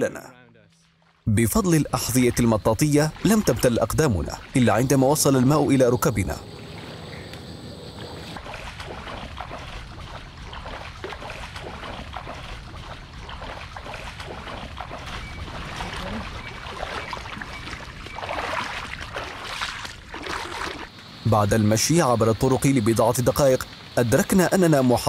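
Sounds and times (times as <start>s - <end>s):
boots splashing through water: 0.7s - 5.6s, 6.6s - 20.9s.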